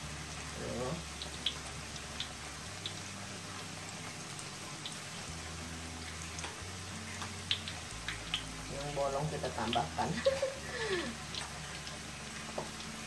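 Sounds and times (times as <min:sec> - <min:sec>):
fritters sizzling in hot oil: 0:00.0 - 0:13.0.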